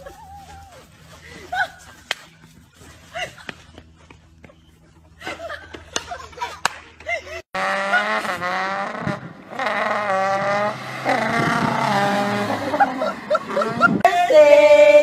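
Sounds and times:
car engine revving: 7.6s - 14.0s.

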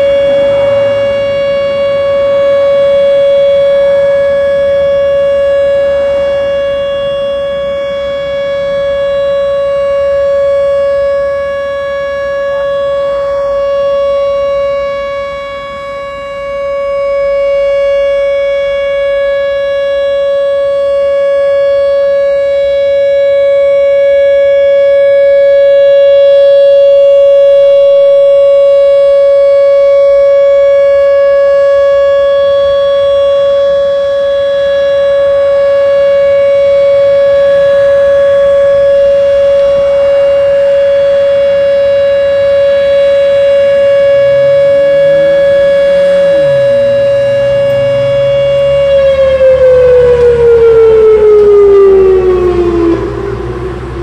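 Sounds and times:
warning siren wailing: 0.0s - 54.0s.

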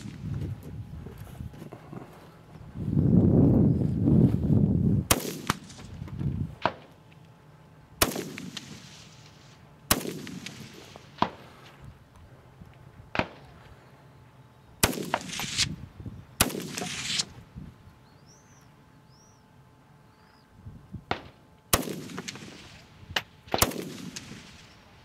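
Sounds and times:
rifle shots echoing: 5.1s - 6.0s, 6.6s - 7.0s, 8.0s - 11.6s, 13.1s - 13.6s, 14.8s - 15.8s, 16.4s - 17.3s, 21.1s - 25.0s.

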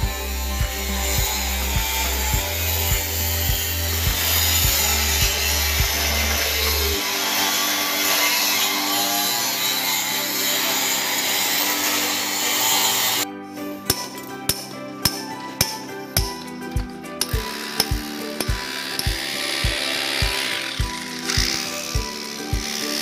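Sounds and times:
low thudding music beat: 0.0s - 7.0s, 13.9s - 22.7s
angle grinder cutting metal: 0.0s - 13.3s, 13.9s - 23.0s.

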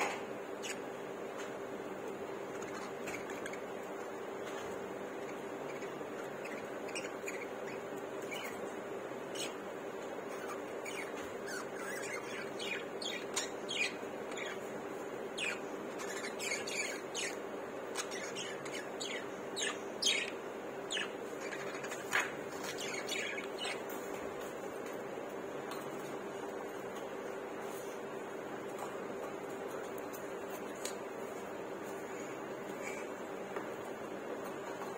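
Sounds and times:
steady low hum: 0.0s - 34.9s
budgerigars chirping and squawking: 2.5s - 24.6s.

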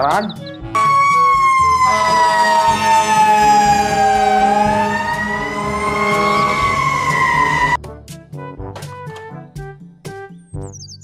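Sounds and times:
fire engine siren wailing: 0.7s - 7.8s.

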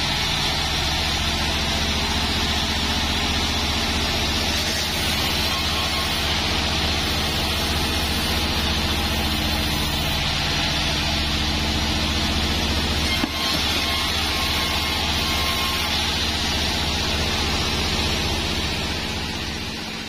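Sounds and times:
band sawmill drone: 0.0s - 20.0s
saw blade cutting log hiss: 4.4s - 10.7s.

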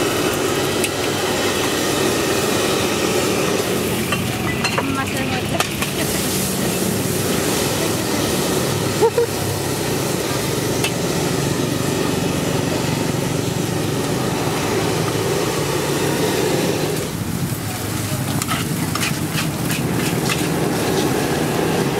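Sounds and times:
rice sizzling in a wok: 0.0s - 21.9s
spatula clinking and scraping wok: 3.0s - 8.2s, 17.8s - 21.4s.

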